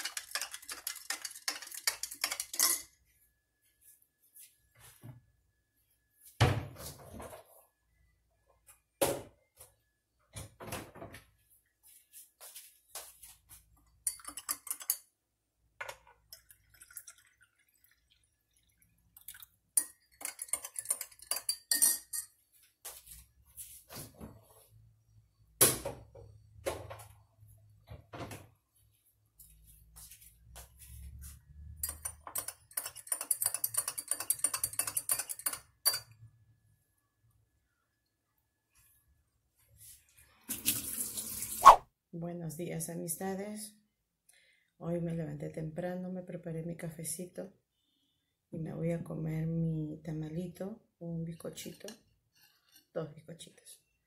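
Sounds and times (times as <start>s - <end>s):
metal spoon clinking on glass: 0.0s - 3.0s, 14.0s - 15.1s, 19.8s - 22.4s, 31.8s - 36.2s.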